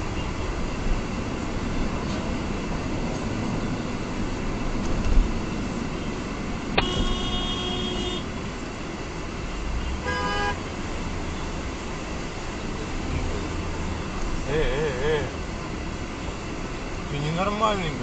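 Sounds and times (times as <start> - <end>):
road rumble inside a car: 0.0 - 18.0
car horn honks: 6.8 - 8.3, 9.9 - 10.7.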